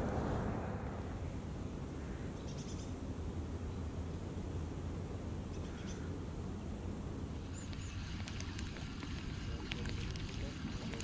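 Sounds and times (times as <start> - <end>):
wind rumbling on microphone: 0.0 - 5.3
bird chirp: 0.1 - 3.0.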